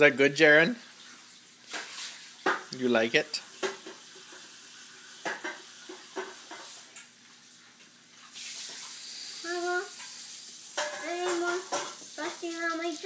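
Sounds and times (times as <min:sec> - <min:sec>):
steady hiss like running tap: 0:00.0 - 0:13.0
child making high-pitched sounds: 0:09.4 - 0:10.0, 0:11.0 - 0:13.0.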